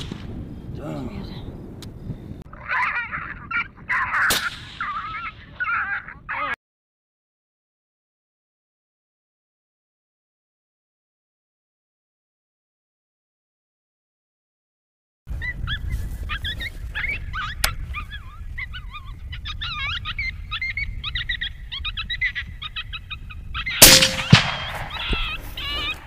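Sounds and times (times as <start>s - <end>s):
sharp crack: 0.0s - 0.4s, 4.2s - 5.0s, 23.8s - 26.0s
warbling animal calls: 2.5s - 6.6s
rifle shot: 4.3s - 4.9s, 23.8s - 26.0s.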